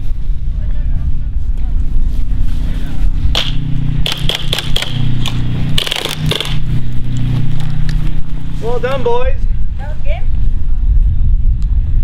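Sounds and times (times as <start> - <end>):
steady low rumble: 0.0 - 12.0
airsoft guns firing: 3.3 - 6.7.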